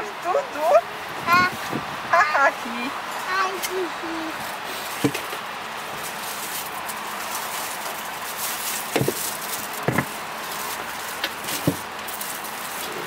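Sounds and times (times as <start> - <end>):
wind noise: 0.8 - 3.4
knocks of items set in car boot: 4.8 - 5.4, 8.7 - 13.0.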